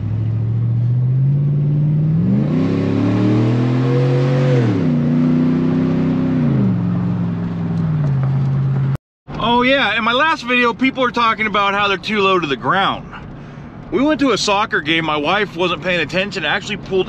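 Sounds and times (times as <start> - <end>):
pickup engine accelerating: 0.0 - 8.9.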